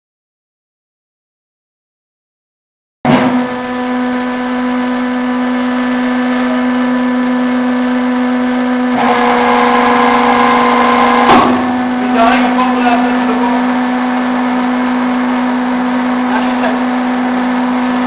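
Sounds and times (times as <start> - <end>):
hydraulic log splitter humming: 3.1 - 18.0
sharp knock: 11.3 - 11.7.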